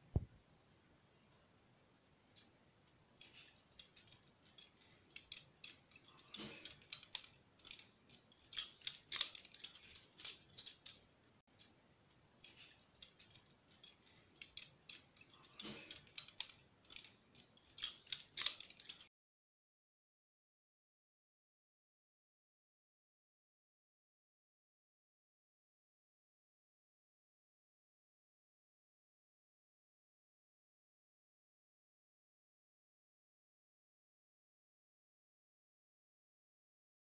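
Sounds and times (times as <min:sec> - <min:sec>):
butterfly knife rattling and clicking: 0:02.4 - 0:19.1.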